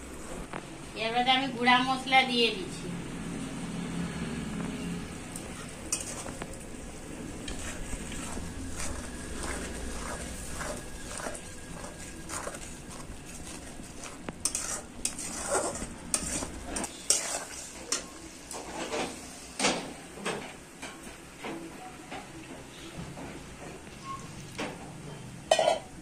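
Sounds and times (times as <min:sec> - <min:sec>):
light sizzle: 0:04.4 - 0:20.0
metal spoon scraping pan: 0:05.2 - 0:06.6, 0:07.4 - 0:19.2.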